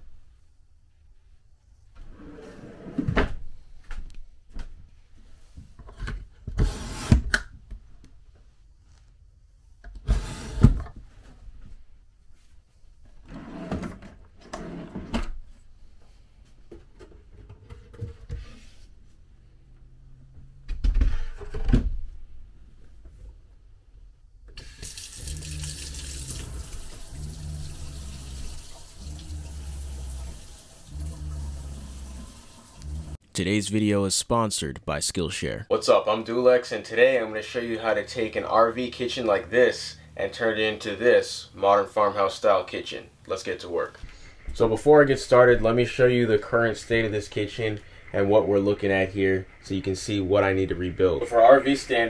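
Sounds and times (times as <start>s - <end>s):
wooden pantry rolling on slides: 2.0s - 3.1s, 13.2s - 15.3s
faucet water running into sink: 24.6s - 33.2s.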